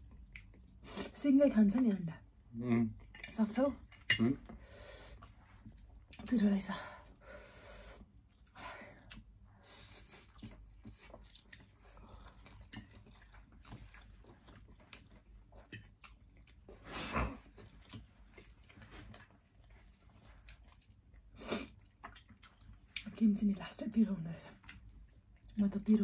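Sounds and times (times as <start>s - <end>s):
chewing and slurping noodles: 9.1s - 23.1s.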